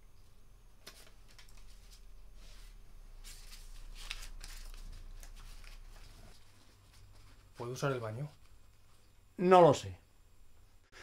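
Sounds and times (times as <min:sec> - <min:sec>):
low room hum: 0:00.0 - 0:11.0
paper banknotes rustling: 0:00.8 - 0:08.3.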